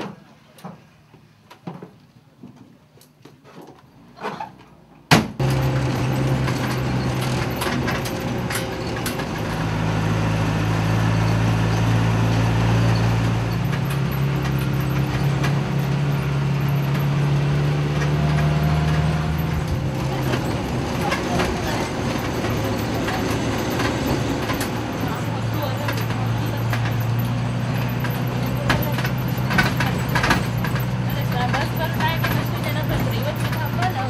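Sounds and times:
rattles and clicks from van body: 5.2s - 34.0s
van engine running inside cabin: 5.4s - 34.0s.

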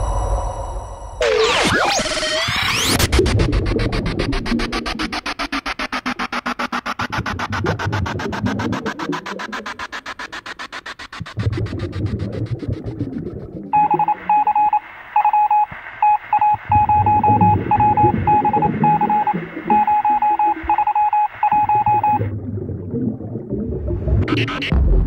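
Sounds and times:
short electronic beeps: 13.8s - 22.3s.

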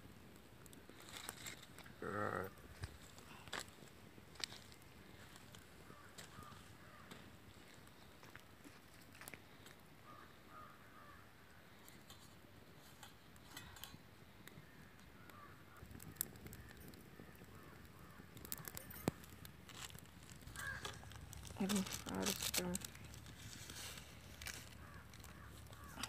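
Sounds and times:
distant bird calls: 5.8s - 7.2s, 9.5s - 11.8s, 14.4s - 19.4s, 20.4s - 21.3s, 24.4s - 26.0s.

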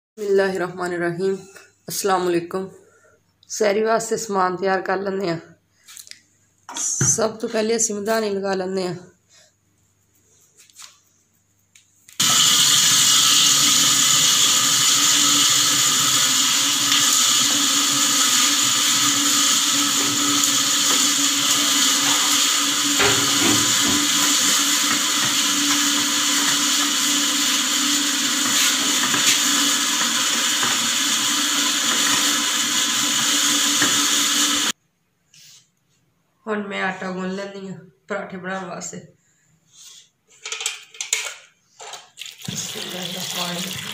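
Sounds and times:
electric butter churn running: 12.2s - 34.8s.

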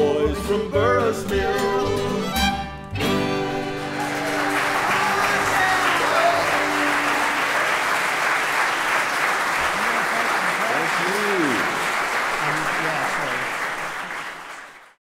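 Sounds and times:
audience applause: 3.6s - 15.0s.

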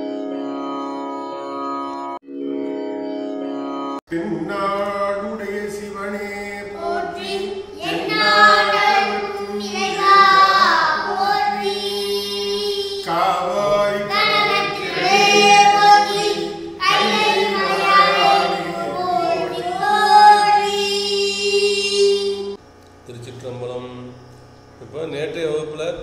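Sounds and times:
person singing devotional chant: 4.1s - 22.6s.

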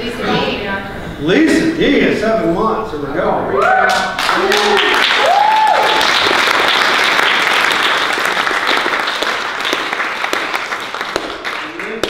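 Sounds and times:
crowd clapping: 3.9s - 12.0s.

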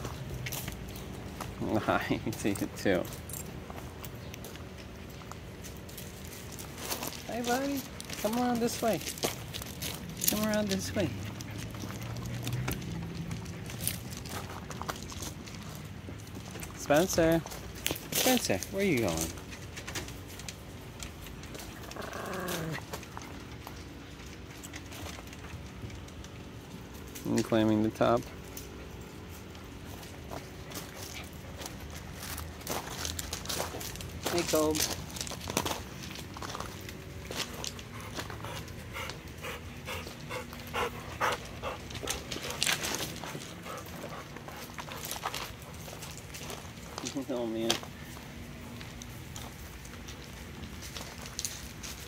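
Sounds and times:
dog panting: 10.2s - 16.8s, 37.4s - 47.2s.

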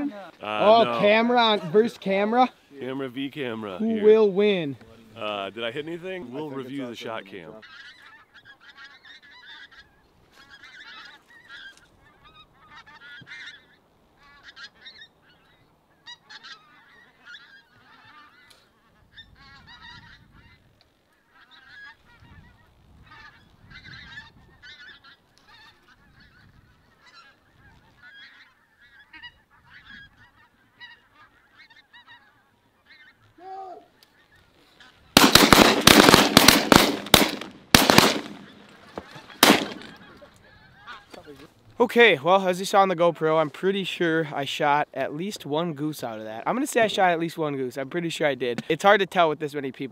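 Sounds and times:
geese calling: 0.0s - 44.8s
shotguns firing: 35.2s - 38.8s, 39.4s - 40.0s.

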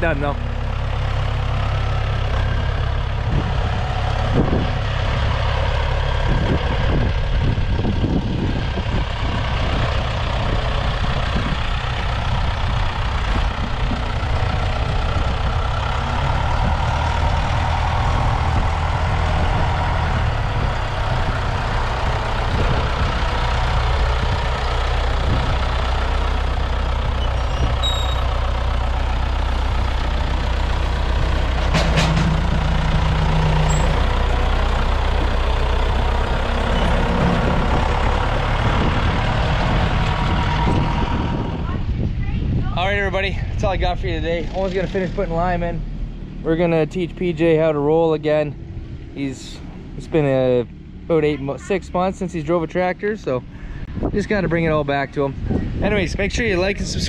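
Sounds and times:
tractor diesel engine running: 0.0s - 57.0s
knocks and clunks: 31.5s - 34.2s.

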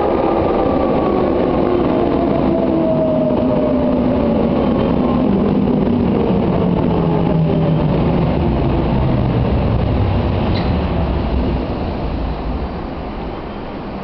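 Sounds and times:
wheels rumbling on rails: 0.0s - 14.0s.

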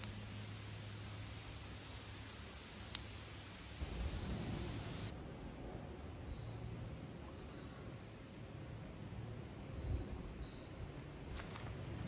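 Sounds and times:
steady low rumble: 0.0s - 12.0s
footsteps crackling on trail: 11.3s - 12.0s.

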